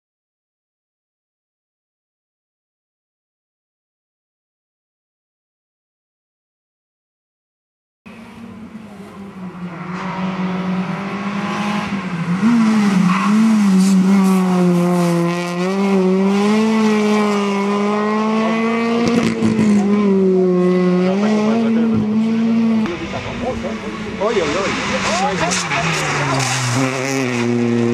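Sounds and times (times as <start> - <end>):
rally car engine revving: 8.1 - 27.9.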